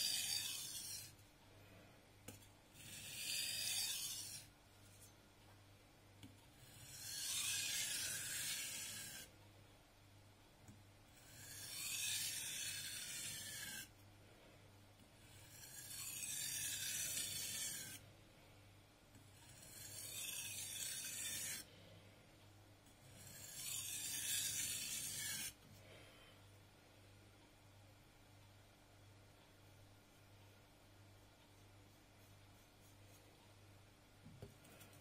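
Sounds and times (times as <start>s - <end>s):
blade scraping on whetstone: 0.0s - 1.2s, 2.7s - 5.1s, 6.6s - 9.3s, 11.2s - 13.9s, 15.2s - 18.0s, 19.4s - 21.7s, 23.0s - 25.6s.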